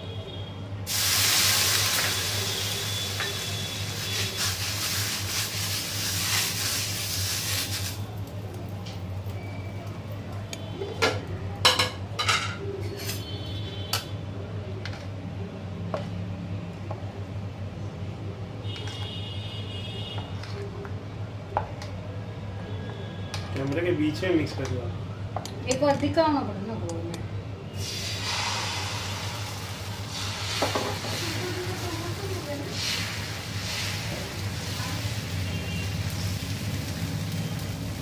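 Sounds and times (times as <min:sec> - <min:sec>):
water sizzling on hot griddle: 0:00.8 - 0:11.3, 0:27.8 - 0:38.0.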